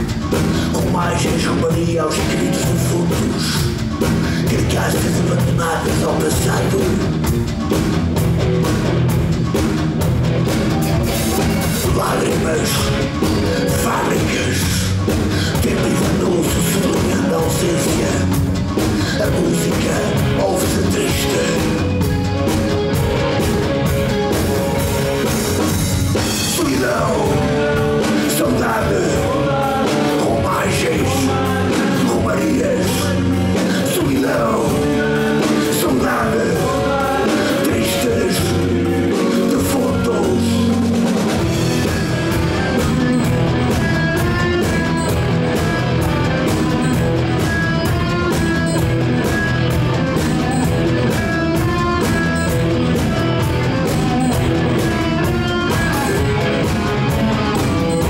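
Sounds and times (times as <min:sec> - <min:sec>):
bass guitar: 0:00.0 - 0:58.0
drum kit: 0:00.0 - 0:58.0
electric guitars: 0:00.0 - 0:58.0.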